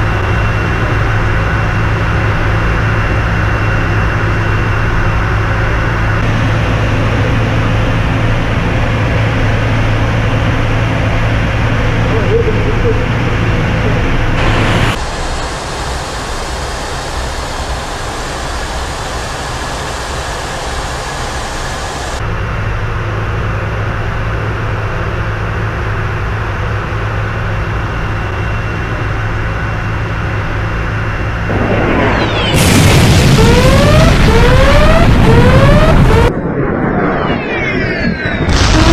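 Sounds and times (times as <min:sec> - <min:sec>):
rushing aircraft noise: 0:00.0 - 0:38.9
loud explosion: 0:14.4 - 0:15.5, 0:31.4 - 0:38.9.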